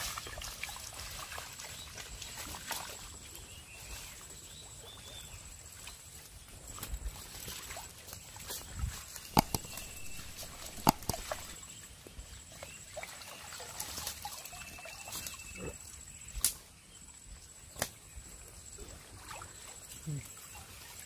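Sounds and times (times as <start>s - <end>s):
water sloshing and dripping: 0.0s - 3.2s, 6.9s - 11.6s, 12.3s - 15.4s
small ticks: 9.4s - 11.6s
sharp slaps: 17.8s - 18.0s.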